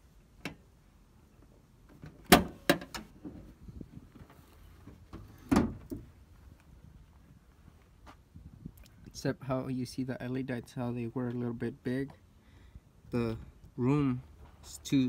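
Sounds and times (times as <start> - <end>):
truck hood latch clunk: 2.0 - 3.1.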